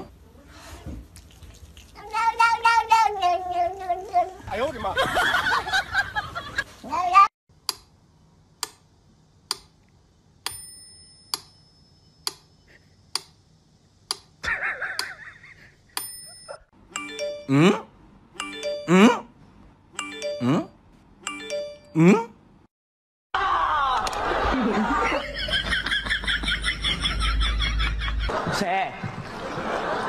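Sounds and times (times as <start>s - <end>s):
bell-like ring: 10.5s - 12.2s, 16.0s - 17.5s.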